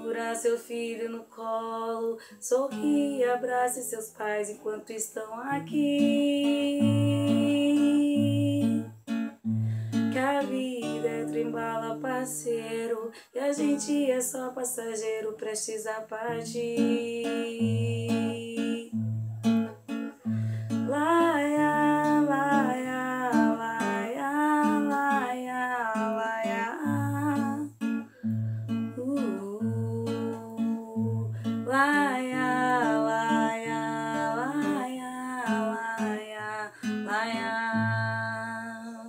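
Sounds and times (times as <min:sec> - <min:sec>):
woman singing wordless melody: 0:00.0 - 0:19.1, 0:20.0 - 0:28.1, 0:28.7 - 0:39.0
acoustic guitar strumming: 0:05.5 - 0:12.5, 0:16.3 - 0:25.2.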